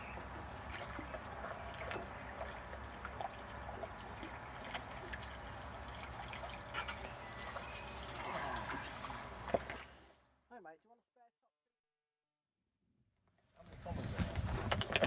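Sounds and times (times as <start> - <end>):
water splashing and trickling: 0.0 - 10.2.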